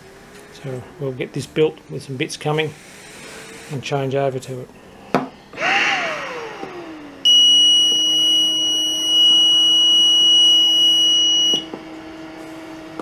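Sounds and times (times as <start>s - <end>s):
ventilator blower hum: 0.0s - 13.0s
electronic alarm buzzer: 7.2s - 11.7s.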